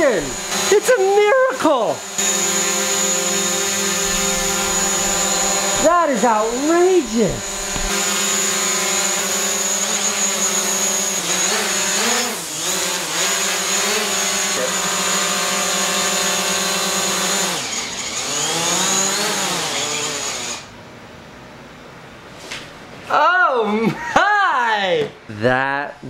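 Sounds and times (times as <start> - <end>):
drone propellers whining: 0.0 - 20.7.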